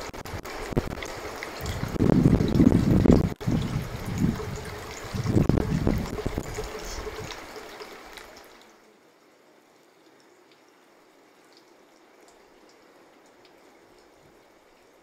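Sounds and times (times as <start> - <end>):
water running from a spout: 0.0 - 8.9
water drips: 0.0 - 15.0.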